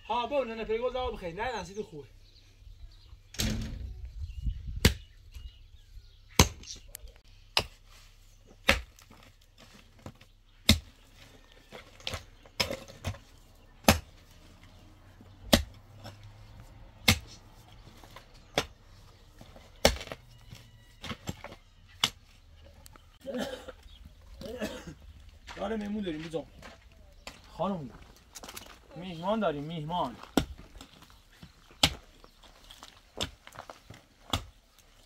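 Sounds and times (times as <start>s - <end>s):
digging tool striking stony ground: 6.4s - 6.8s, 7.5s - 7.8s, 8.6s - 14.2s, 15.4s - 16.3s, 17.0s - 18.8s, 19.4s - 22.2s, 31.7s - 32.1s, 32.7s - 34.6s.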